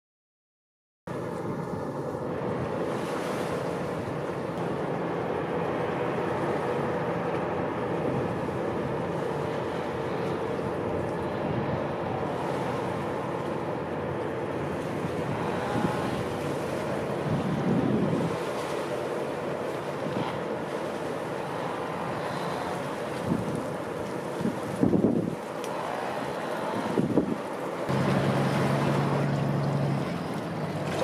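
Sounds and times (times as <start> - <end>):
ship machinery drone: 1.1 - 31.0
wind on microphone: 14.6 - 18.8, 21.6 - 31.0.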